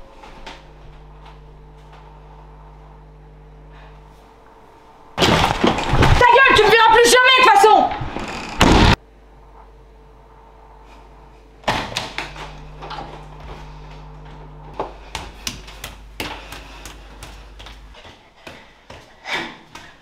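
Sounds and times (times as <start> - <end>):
low steady hum: 0.0 - 7.3, 8.2 - 18.4
door slamming shut: 8.4 - 9.0
footsteps climbing stairs: 11.7 - 20.0.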